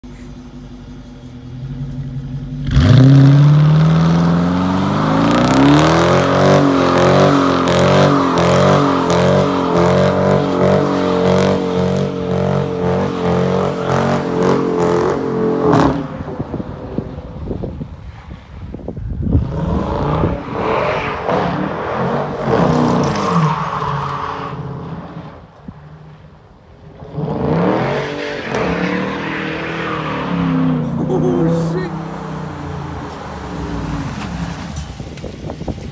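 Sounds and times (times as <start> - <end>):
car engine revving: 0.0 - 18.6, 19.2 - 35.8
tyres spinning in a burnout: 2.7 - 18.5, 19.3 - 25.5, 27.1 - 35.9.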